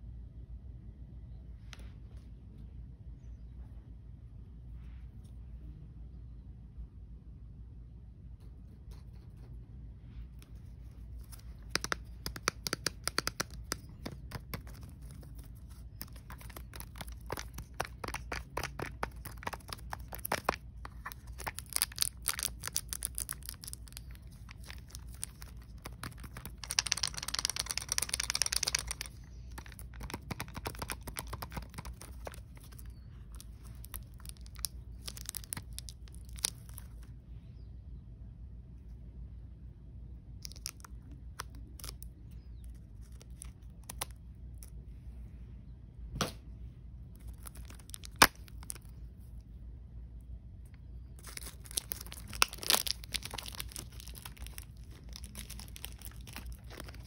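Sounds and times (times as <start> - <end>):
plastic wrap crinkling: 10.4 - 37.1, 47.1 - 49.0, 51.0 - 57.0
plastic wrap tearing: 11.2 - 37.0, 47.2 - 48.9, 51.2 - 57.0.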